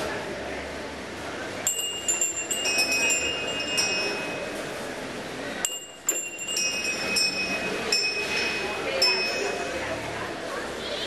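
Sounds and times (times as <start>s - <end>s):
small metal bell ringing: 1.6s - 4.6s, 5.6s - 9.8s.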